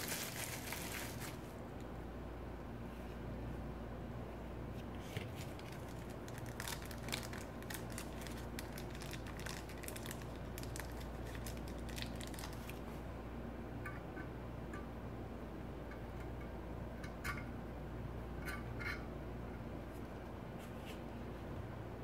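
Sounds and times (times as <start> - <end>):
plastic bags crinkling: 0.0 - 1.5, 5.3 - 12.8
steady low hum: 0.0 - 22.0.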